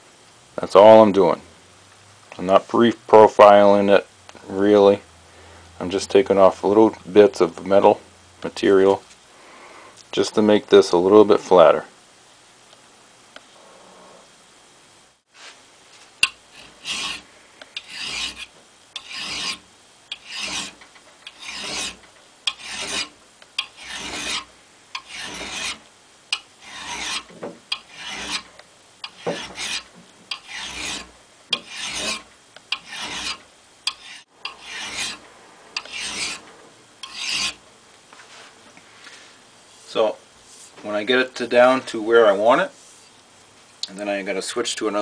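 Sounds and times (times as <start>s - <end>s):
file rasping on steel: 16.2s - 35.2s, 35.8s - 36.4s, 37.0s - 37.6s.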